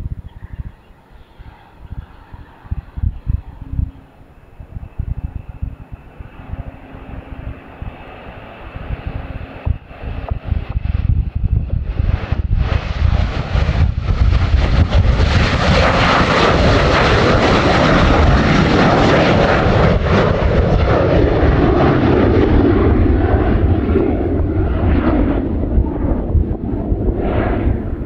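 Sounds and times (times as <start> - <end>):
jet roar at takeoff: 0.0 - 28.0.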